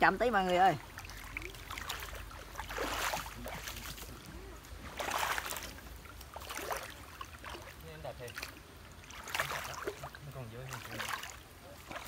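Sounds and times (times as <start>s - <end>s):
footsteps splashing in stream: 0.1s - 12.0s.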